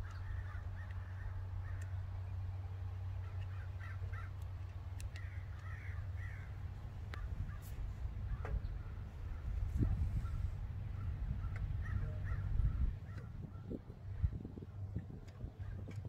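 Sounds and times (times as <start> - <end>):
crows cawing: 0.0 - 2.0, 3.2 - 4.4, 5.0 - 9.6, 10.2 - 13.8
steady low rumble: 0.0 - 16.0
clicks of fuel line fittings: 7.1 - 8.9.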